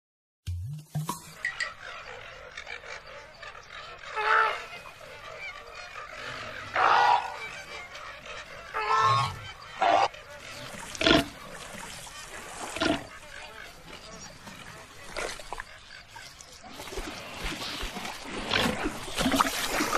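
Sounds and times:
flamingos honking: 0:01.3 - 0:16.1.

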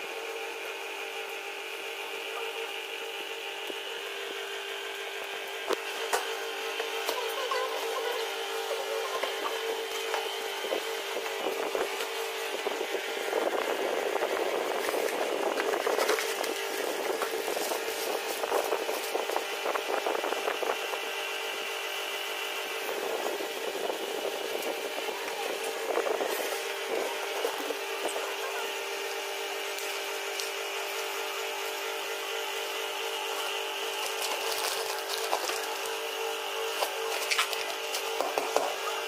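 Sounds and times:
steady low hum: 0:00.0 - 0:39.0
packaging crinkling and rustling: 0:14.8 - 0:19.2, 0:33.9 - 0:36.0, 0:36.6 - 0:38.4.

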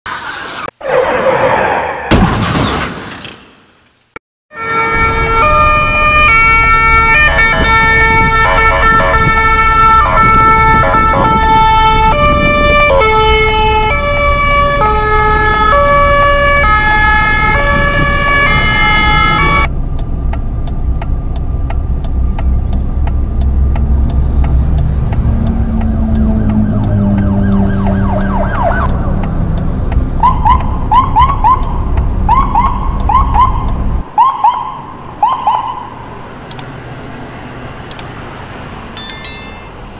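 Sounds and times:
siren yelping: 0:26.2 - 0:28.9
siren winding up: 0:26.2 - 0:29.0.

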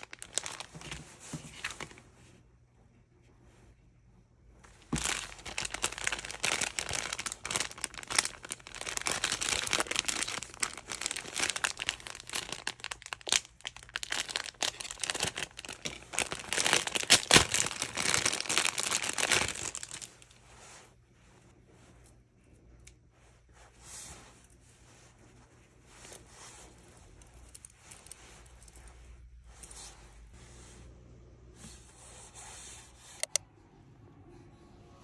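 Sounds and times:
packaging crinkling: 0:00.0 - 0:02.0, 0:04.8 - 0:20.4.

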